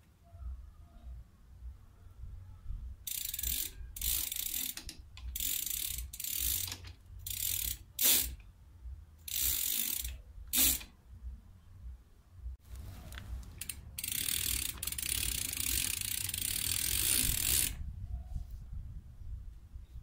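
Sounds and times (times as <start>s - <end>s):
bicycle hub ratcheting: 3.0s - 8.4s, 9.2s - 10.9s, 13.6s - 17.8s.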